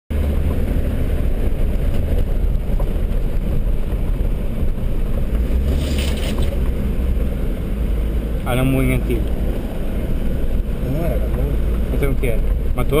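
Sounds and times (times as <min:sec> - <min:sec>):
vehicle engine rumble: 0:00.1 - 0:13.0.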